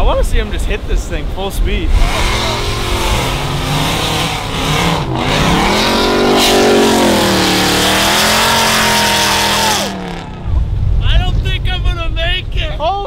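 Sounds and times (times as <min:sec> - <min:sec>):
wind on microphone: 0:00.0 - 0:12.8
truck engine revving: 0:01.8 - 0:10.9.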